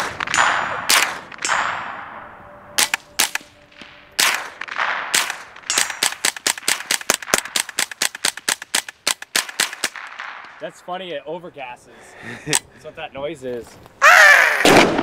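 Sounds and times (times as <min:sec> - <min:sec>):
rifle rapid fire: 0:00.0 - 0:02.1, 0:02.8 - 0:10.6, 0:14.6 - 0:15.0
rifle gunshots with echo: 0:00.0 - 0:10.8, 0:14.6 - 0:15.0
man talking: 0:10.6 - 0:13.8.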